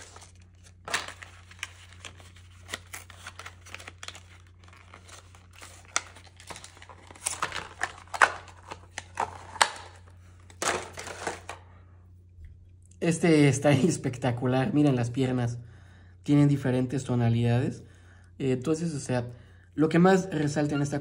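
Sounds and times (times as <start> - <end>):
packaging tearing and crinkling: 0.0 - 11.6.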